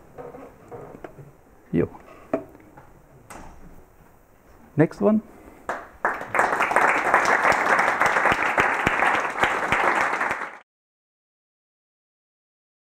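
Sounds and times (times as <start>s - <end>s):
audience applauding: 5.7s - 10.6s.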